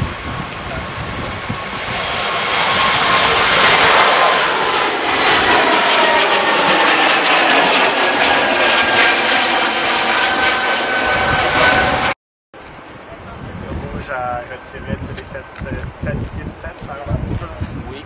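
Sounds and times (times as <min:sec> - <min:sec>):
jet engines at takeoff: 0:00.0 - 0:12.2, 0:12.8 - 0:18.0
whining engine tones: 0:01.6 - 0:12.2.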